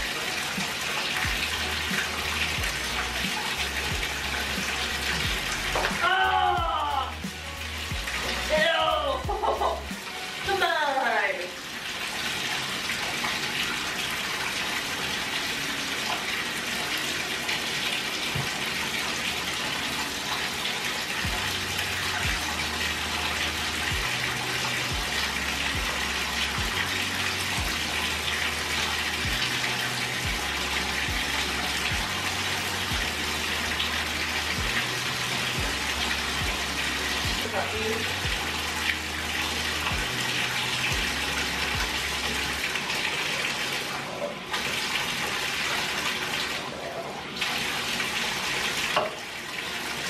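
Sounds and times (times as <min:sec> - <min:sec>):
water running into a bathtub: 0:00.0 - 0:50.0.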